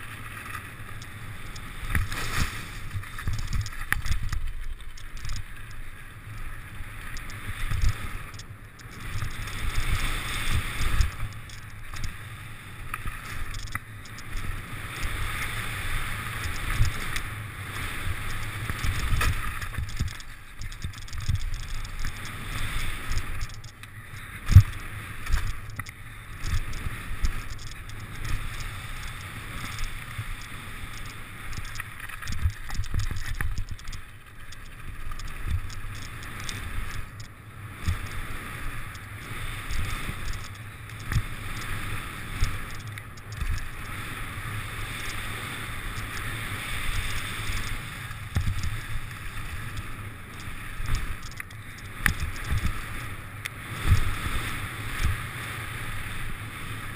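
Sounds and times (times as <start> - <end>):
bike knocking and rattling: 0.0 - 9.9, 18.2 - 38.2
bike tyre rumble on gravel: 0.0 - 56.9.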